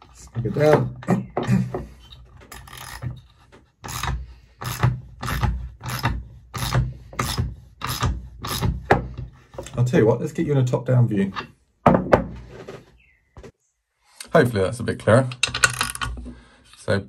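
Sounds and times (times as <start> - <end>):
nut rasping along threaded rod: 0.0 - 9.8.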